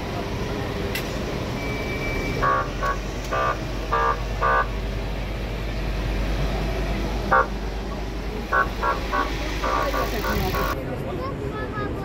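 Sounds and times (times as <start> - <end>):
truck engines idling: 0.0 - 12.0
vehicle horn toots: 1.9 - 4.8, 7.3 - 7.6, 8.5 - 10.8.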